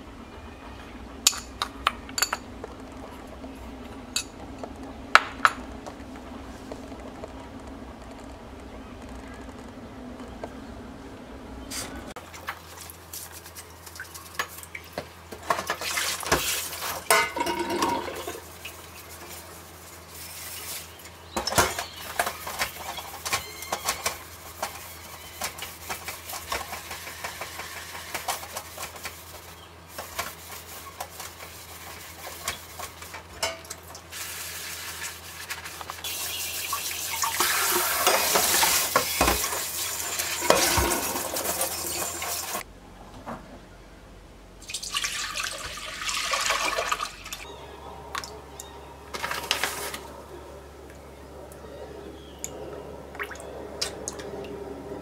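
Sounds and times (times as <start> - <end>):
sponge scrubbing a metal pot: 15.5 - 42.6
pot knocking and clinking: 17.1 - 18.4
faucet running: 36.1 - 42.6.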